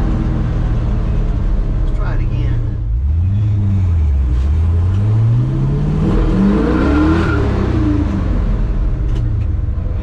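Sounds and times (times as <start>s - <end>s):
engine accelerating: 2.8s - 10.0s.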